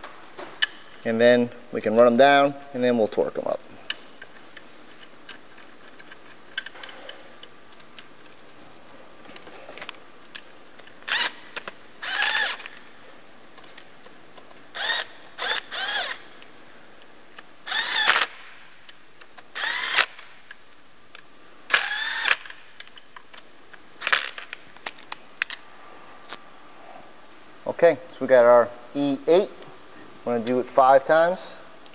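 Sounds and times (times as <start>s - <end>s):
electric power tool bursts: 12.0s - 12.6s, 14.8s - 16.2s, 19.6s - 20.2s, 21.7s - 22.5s.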